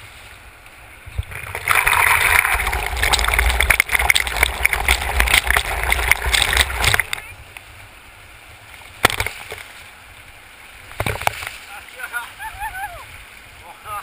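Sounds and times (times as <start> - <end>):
river water rushing and splashing: 0.0 - 14.0.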